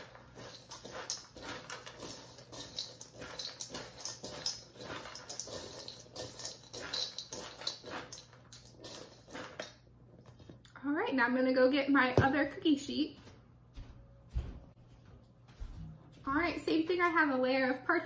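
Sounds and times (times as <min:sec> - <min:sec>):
spatula scraping seeds in metal bowl: 0:00.0 - 0:09.8.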